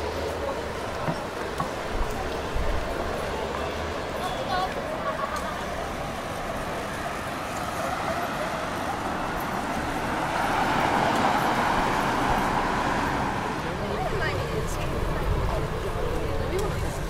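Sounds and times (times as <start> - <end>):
road traffic noise: 0.0 - 17.0
vehicle passing: 5.6 - 17.0.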